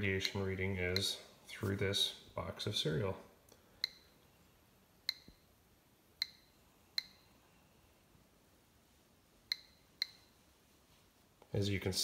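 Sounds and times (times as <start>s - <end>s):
geiger counter clicking: 0.2s - 1.2s, 3.8s - 4.2s, 5.0s - 5.5s, 6.2s - 7.3s, 9.5s - 10.3s.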